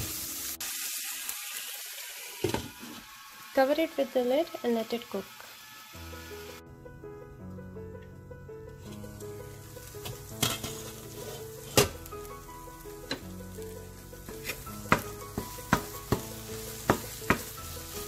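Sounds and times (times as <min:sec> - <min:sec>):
masala sizzling in a pan: 0:00.0 - 0:06.6, 0:08.8 - 0:18.0
soft background music: 0:05.9 - 0:18.0
utensil knocking against pan: 0:14.3 - 0:17.6.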